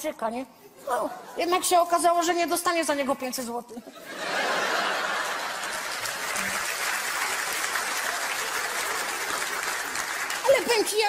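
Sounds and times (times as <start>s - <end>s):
audience applause: 4.5s - 11.0s.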